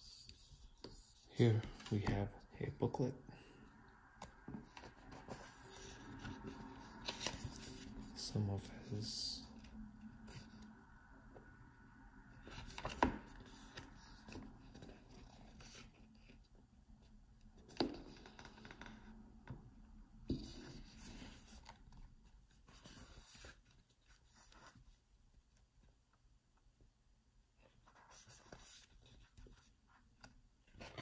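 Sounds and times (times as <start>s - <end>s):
paper pages turning: 4.7s - 8.1s.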